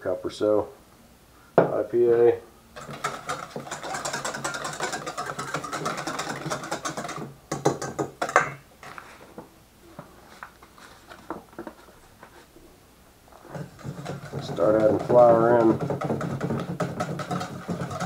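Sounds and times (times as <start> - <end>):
whisk clinking in metal bowl: 2.8 - 8.5, 13.6 - 18.0
whisk knocking against bowl: 2.8 - 8.5, 13.5 - 18.0.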